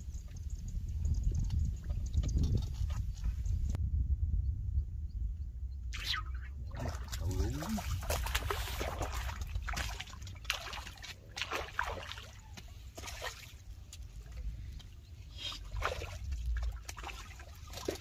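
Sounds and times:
fish splashing in water: 0:06.8 - 0:13.6.

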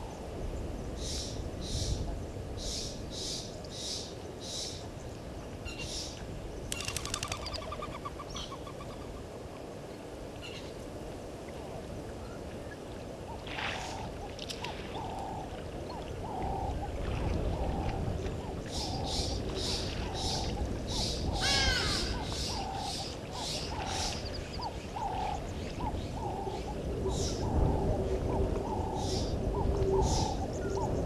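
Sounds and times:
short lower bird calls: 0:18.7 - 0:25.3.

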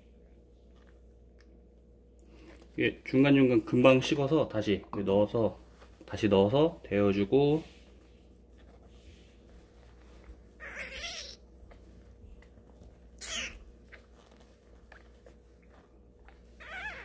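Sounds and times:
kitten mewing: 0:10.6 - 0:11.4, 0:13.2 - 0:13.6, 0:16.6 - 0:17.0.

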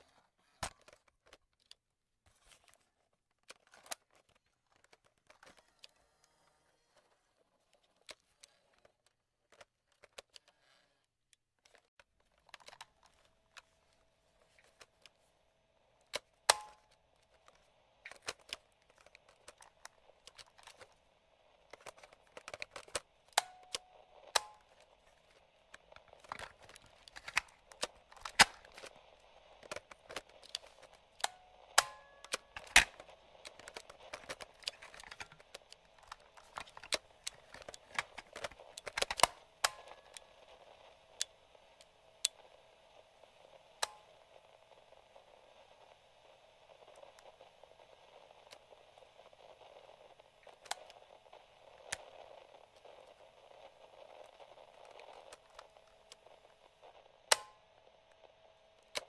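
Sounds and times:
radio static crackling: 0:12.4 - 0:59.0
plastic switch clicks: 0:16.1 - 0:17.0, 0:21.7 - 0:24.9, 0:57.3 - 0:57.6.

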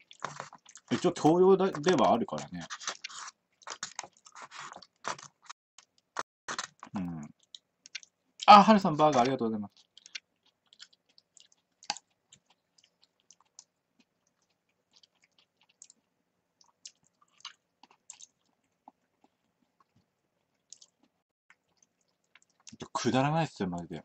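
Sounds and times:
person chewing food: 0:00.0 - 0:08.5, 0:09.1 - 0:22.9.

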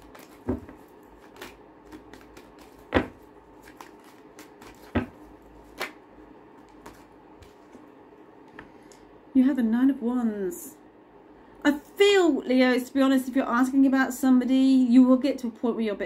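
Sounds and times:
cards being shuffled: 0:00.0 - 0:07.9.

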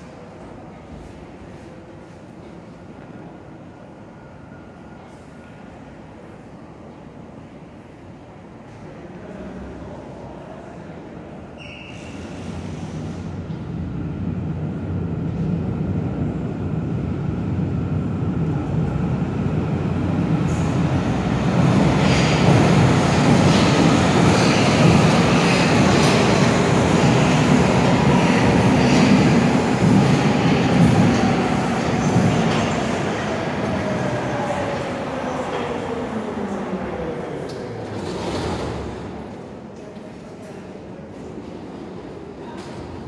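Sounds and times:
subway train rumble: 0:00.0 - 0:43.0
train wheel squeal: 0:11.5 - 0:12.6.

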